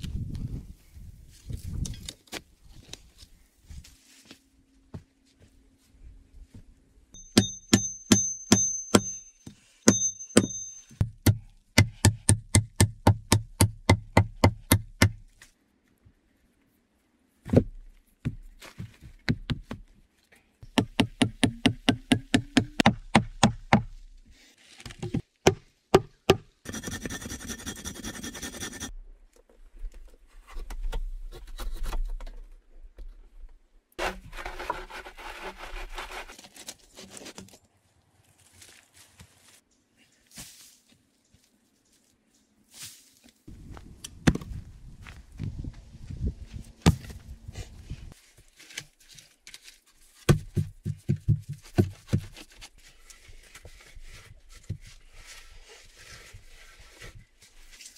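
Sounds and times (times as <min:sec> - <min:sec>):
hammering on log: 0:07.3 - 0:09.2, 0:09.9 - 0:15.2, 0:20.7 - 0:23.9.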